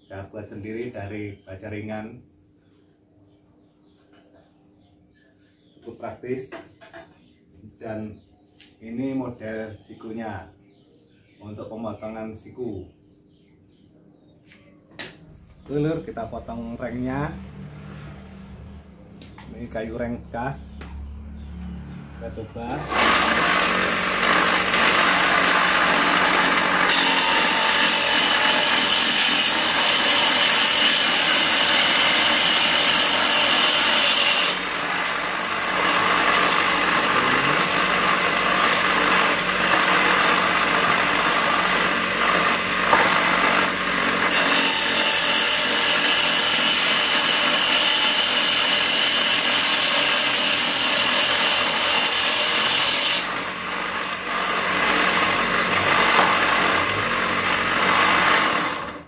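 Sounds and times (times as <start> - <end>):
table saw cutting wood: 21.7 - 59.0
electric motor running freely: 22.6 - 59.0.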